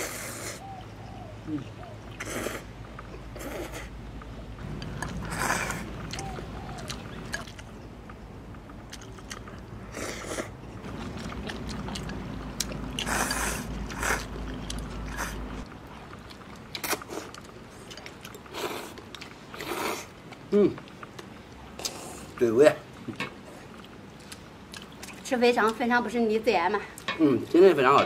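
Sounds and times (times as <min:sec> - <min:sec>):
people slurping noodles: 0:02.2 - 0:02.7, 0:03.4 - 0:03.9, 0:05.0 - 0:06.2, 0:13.0 - 0:14.3
chewing: 0:04.6 - 0:22.4, 0:23.1 - 0:25.9.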